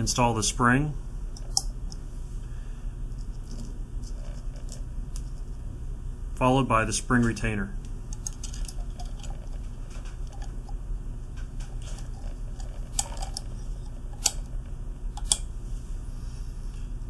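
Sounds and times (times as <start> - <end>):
steady low hum: 0.0 - 17.0
metal clicks and scrapes: 11.4 - 15.4.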